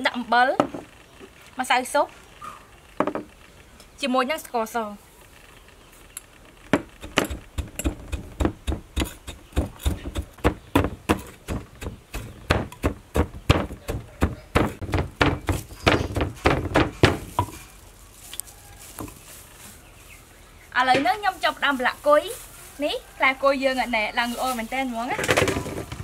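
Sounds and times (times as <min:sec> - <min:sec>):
pestle pounding in a mortar: 0:06.8 - 0:17.6.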